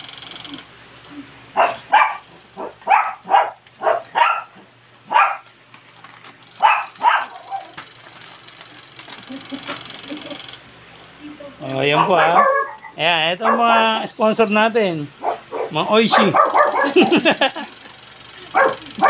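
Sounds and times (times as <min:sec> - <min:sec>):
puppies yapping: 0:01.5 - 0:05.5, 0:06.5 - 0:08.0, 0:11.8 - 0:14.0, 0:15.2 - 0:17.8, 0:18.4 - 0:19.0.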